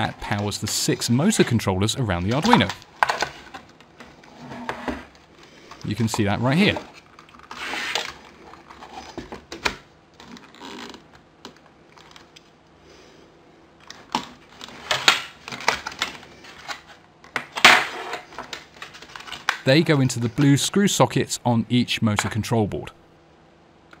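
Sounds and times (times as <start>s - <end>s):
wires rustling: 0.0s - 12.6s.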